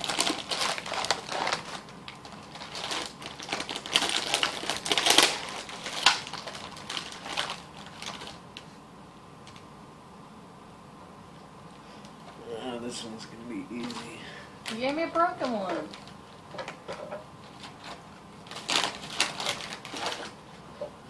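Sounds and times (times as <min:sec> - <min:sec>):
plastic package crinkling: 0:00.0 - 0:08.7, 0:13.6 - 0:20.9.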